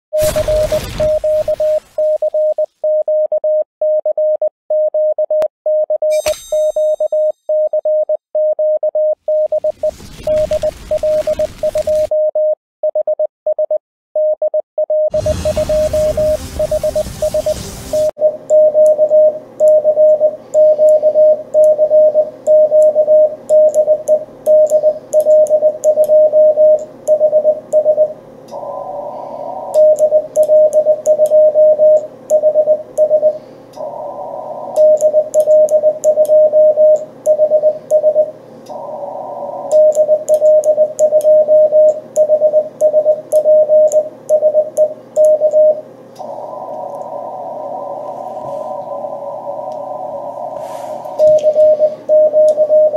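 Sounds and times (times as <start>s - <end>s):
morse code beeps: 0.2s - 28.2s, 29.7s - 33.4s, 34.7s - 38.3s, 39.6s - 45.8s, 51.1s - 52.9s
radio band hiss: 46.2s - 51.3s.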